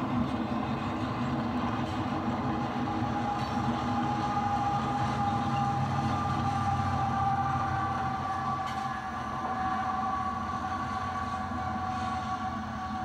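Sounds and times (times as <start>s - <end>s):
model locomotives running on track: 0.0s - 13.0s.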